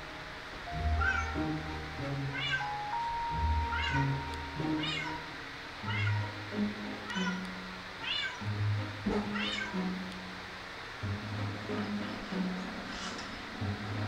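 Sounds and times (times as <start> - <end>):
background music: 0.0 - 14.0
cat meowing: 1.0 - 1.4, 2.2 - 2.8, 3.6 - 6.3, 8.0 - 8.4, 9.3 - 9.8.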